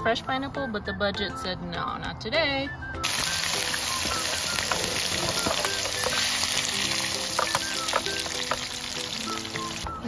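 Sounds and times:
fruit sizzling in butter: 0:03.0 - 0:10.0.

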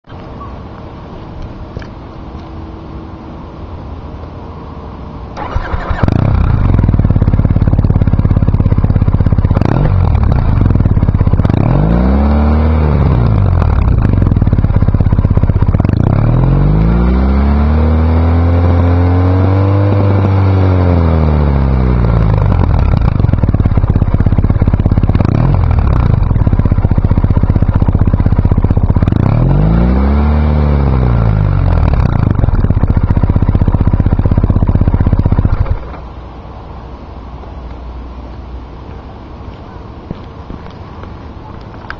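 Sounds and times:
motorcycle engine starting: 0:05.3 - 0:36.2
motorcycle engine idling and revving: 0:05.3 - 0:36.8.

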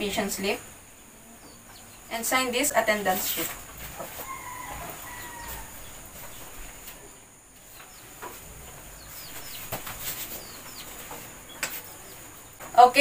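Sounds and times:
birds chirping faintly: 0:00.0 - 0:13.0.

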